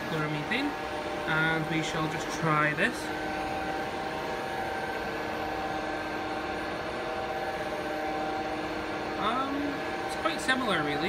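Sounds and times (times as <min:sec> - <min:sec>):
steady mechanical drone: 0:00.0 - 0:11.0.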